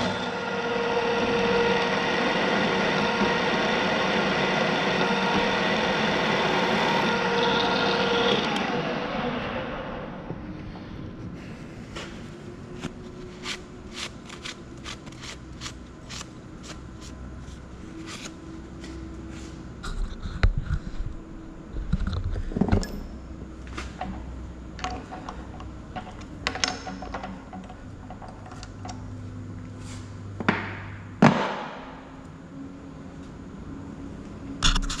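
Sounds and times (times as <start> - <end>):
knocks and clatter of hands working: 23.8 - 29.0.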